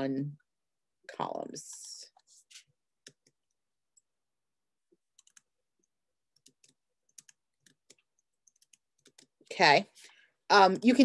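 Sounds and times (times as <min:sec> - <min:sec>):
keyboard and mouse clicking: 0:03.0 - 0:04.1, 0:05.1 - 0:09.4.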